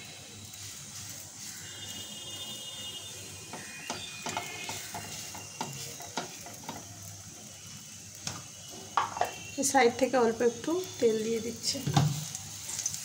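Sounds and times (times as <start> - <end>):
frying sizzle: 0.0 - 13.0
spatula tapping in frying pan: 3.5 - 6.9, 9.0 - 9.4.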